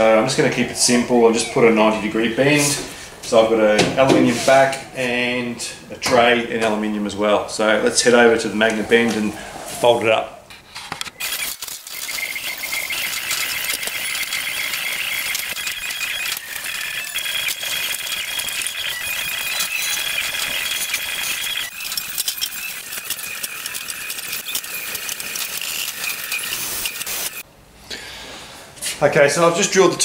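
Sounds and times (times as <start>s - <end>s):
metal sheet rattling and clattering: 11.2s - 27.4s.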